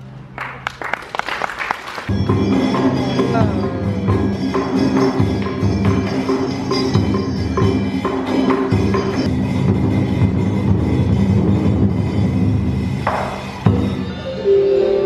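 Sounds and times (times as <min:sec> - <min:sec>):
sustained instrument tones: 0:02.1 - 0:08.1
wood-block strikes: 0:02.1 - 0:09.4
drum strikes: 0:02.1 - 0:14.0.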